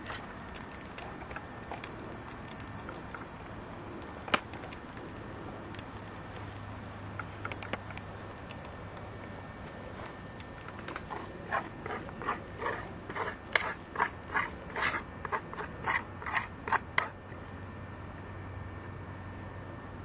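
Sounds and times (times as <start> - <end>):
utensil scraping frying pan: 11.0 - 17.1.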